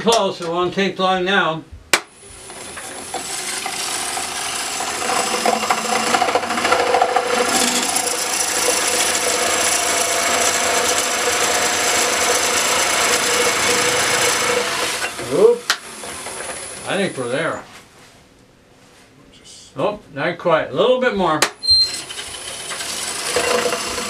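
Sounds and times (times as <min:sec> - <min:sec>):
knife rasping into spinning wood: 0:02.4 - 0:15.4, 0:21.6 - 0:24.0.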